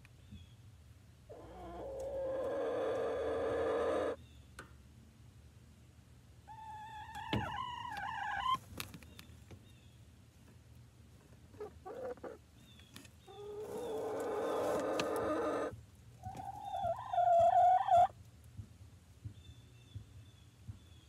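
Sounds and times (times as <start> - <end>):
hen calling: 1.3 - 4.2, 13.3 - 18.1.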